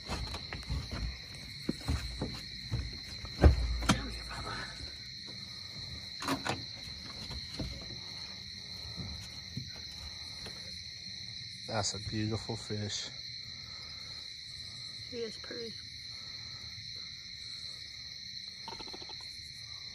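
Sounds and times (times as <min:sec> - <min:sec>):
knocks and thumps on boat: 0:00.0 - 0:08.2
night insects chirring: 0:00.0 - 0:19.9.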